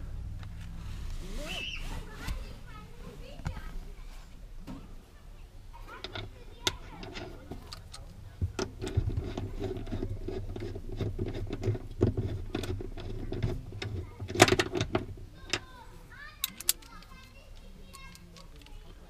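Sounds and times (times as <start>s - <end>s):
socket ratchet clicking: 16.4s - 18.8s.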